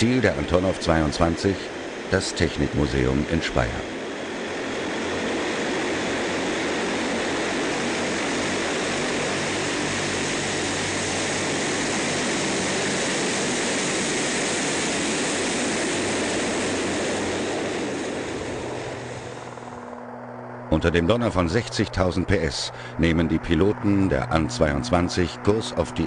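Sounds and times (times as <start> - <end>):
turboprop aircraft engines running: 0.0 - 26.0.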